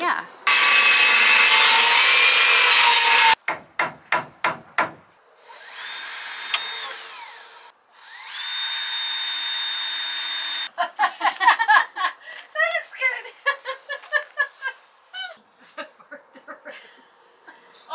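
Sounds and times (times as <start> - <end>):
power saw cutting wood: 0.5 - 3.4, 5.4 - 10.7
saw motor whining: 0.5 - 3.4, 5.4 - 10.7.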